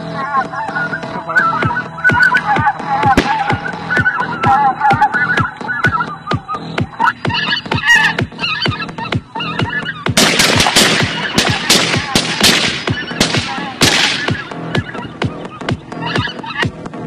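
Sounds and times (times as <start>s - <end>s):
electronic music with steady beat: 0.0s - 17.0s
shotgun shots: 3.2s - 3.6s, 10.2s - 14.6s.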